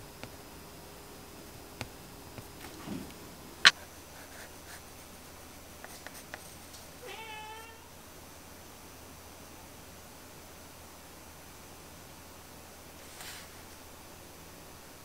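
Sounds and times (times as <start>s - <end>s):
cat-like animal call: 7.0s - 7.9s.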